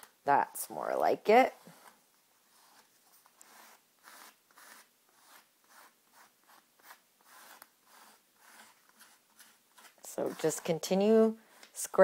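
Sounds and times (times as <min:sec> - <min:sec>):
paper tag scraping gesso: 0:02.5 - 0:11.8.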